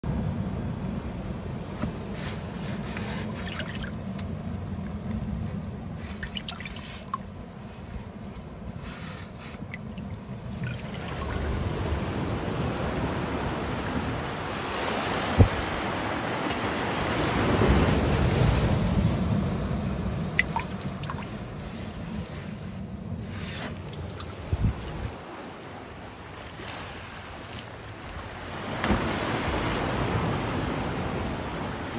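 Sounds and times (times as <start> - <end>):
water splashing in a bucket: 2.8 - 5.0, 6.0 - 7.4, 9.2 - 11.8, 20.3 - 21.4, 23.5 - 27.7
surf washing against rocks: 8.7 - 19.4, 20.4 - 31.9.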